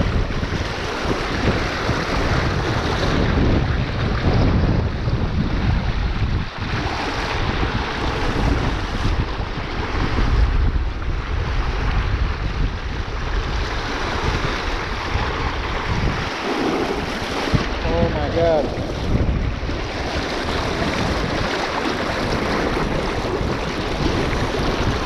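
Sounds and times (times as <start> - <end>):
river current rushing and splashing: 0.0 - 25.0
wind buffeting microphone: 0.0 - 25.0.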